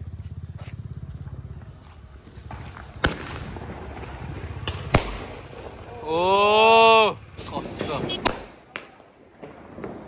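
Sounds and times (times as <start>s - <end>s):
firecracker bangs: 2.5s - 5.9s.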